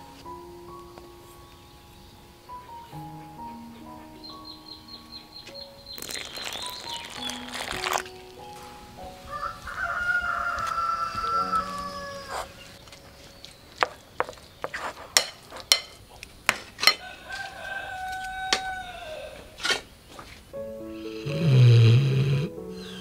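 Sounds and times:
rooster crowing: 0:09.2 - 0:12.6, 0:17.0 - 0:19.6.

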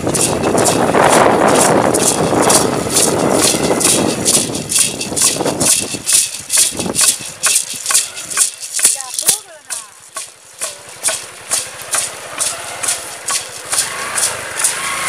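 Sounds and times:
dense rushing noise: 0:00.0 - 0:08.8
hand rattles shaken: 0:00.0 - 0:14.8.

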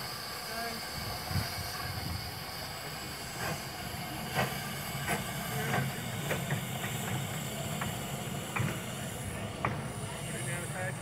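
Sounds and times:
steam locomotive hissing steam: 0:00.0 - 0:11.0.

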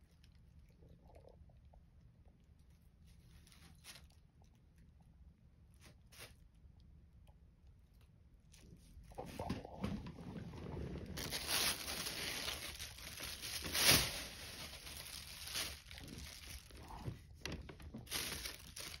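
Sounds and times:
plastic bag crinkling: 0:09.2 - 0:19.0.

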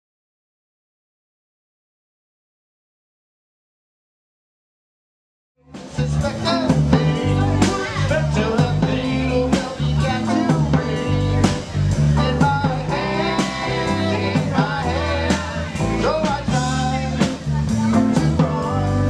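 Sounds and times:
live band playing: 0:05.6 - 0:19.0
person singing: 0:05.7 - 0:19.0.

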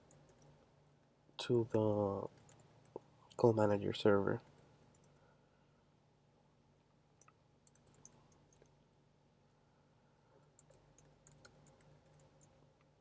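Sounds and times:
keyboard typing: 0:00.0 - 0:00.6, 0:01.8 - 0:03.0, 0:07.6 - 0:08.7, 0:10.6 - 0:12.6
low steady hum: 0:00.0 - 0:13.0.

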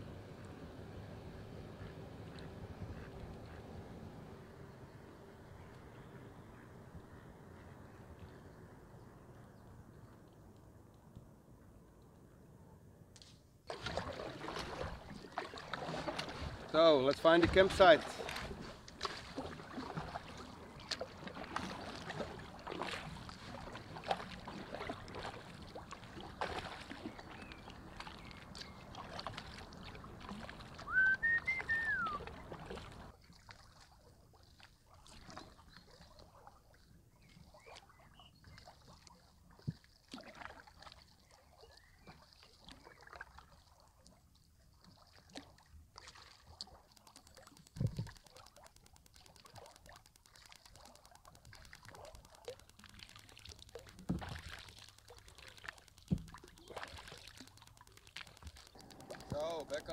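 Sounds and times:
paddle strokes through water: 0:00.0 - 0:12.3, 0:13.6 - 0:59.9
water splashing and dripping: 0:13.6 - 0:59.9
whistled call: 0:30.8 - 0:32.3.

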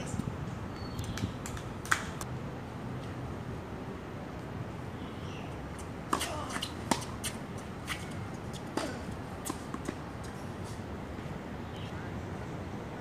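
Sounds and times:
outdoor background noise: 0:00.0 - 0:13.0
tennis balls struck by rackets: 0:06.0 - 0:10.1.

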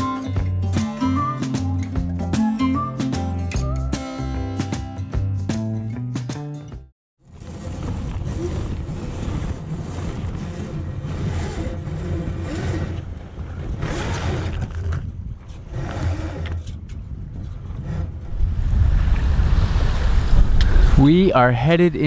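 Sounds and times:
wind rushing over microphone: 0:07.3 - 0:22.0.

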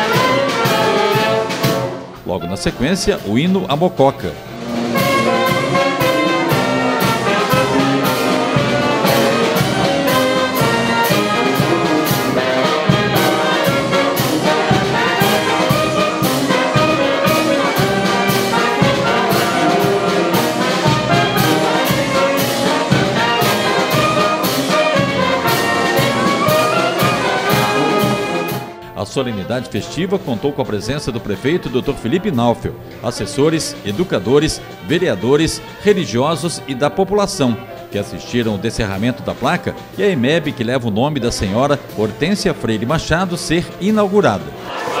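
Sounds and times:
wind band playing an anthem: 0:00.0 - 0:45.0.

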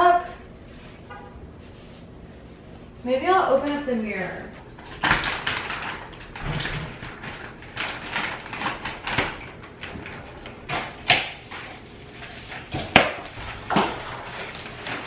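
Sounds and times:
plastic wrap crinkling: 0:04.6 - 0:15.0.

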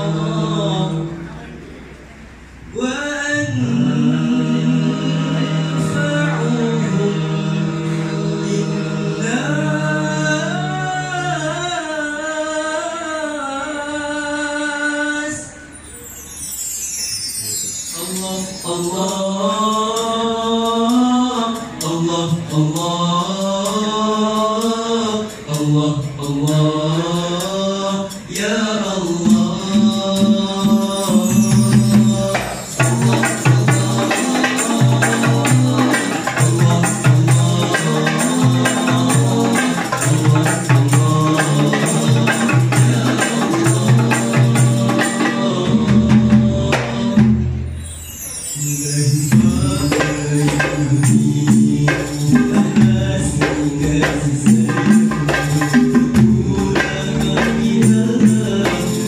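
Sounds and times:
boys singing: 0:00.0 - 0:01.4, 0:02.7 - 0:15.6, 0:17.9 - 0:47.7, 0:48.6 - 0:59.0
bar chimes: 0:15.5 - 0:19.8, 0:30.5 - 0:40.2, 0:47.7 - 0:51.1
hand drums: 0:29.2 - 0:47.7, 0:49.3 - 0:59.0.

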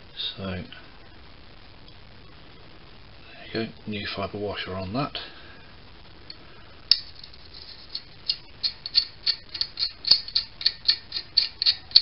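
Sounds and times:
metallic clicks of fitting turning: 0:07.9 - 0:12.0.

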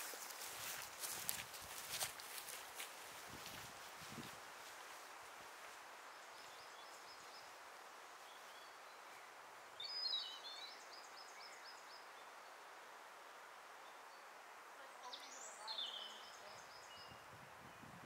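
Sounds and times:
faint steady hiss: 0:00.0 - 0:18.0
songbirds chirping: 0:04.6 - 0:17.9.

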